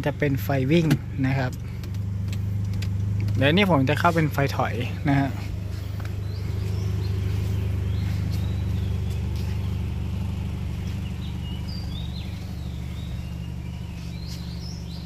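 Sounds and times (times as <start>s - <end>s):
birds chirping: 0.0s - 15.0s
car engine idling: 0.0s - 15.0s.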